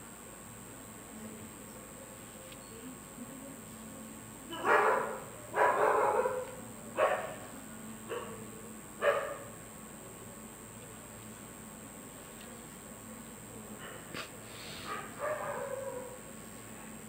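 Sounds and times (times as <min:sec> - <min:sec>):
dog barking: 0:04.5 - 0:07.5, 0:08.1 - 0:09.6, 0:13.8 - 0:16.3.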